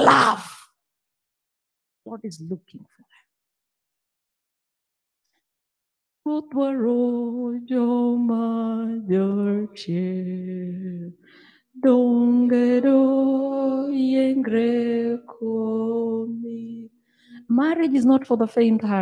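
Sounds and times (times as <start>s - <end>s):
woman singing unaccompanied: 6.3s - 11.1s, 11.8s - 16.9s.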